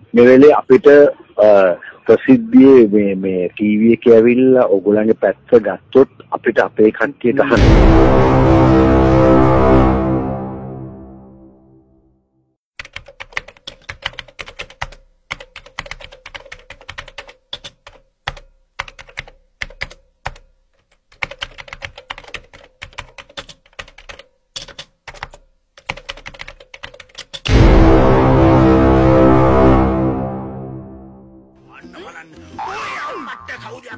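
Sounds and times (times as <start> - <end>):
background music: 7.5 - 12.0, 27.5 - 33.9
keyboard typing: 12.8 - 27.5.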